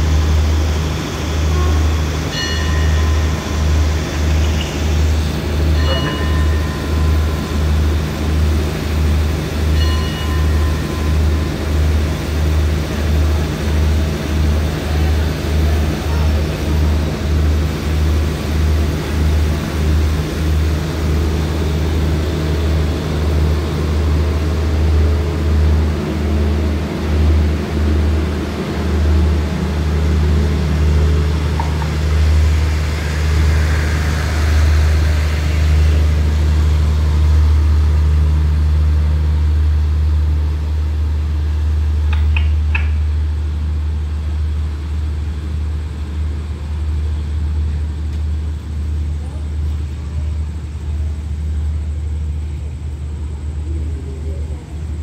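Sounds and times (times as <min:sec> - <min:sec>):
train rumbling: 0:00.0 - 0:55.0.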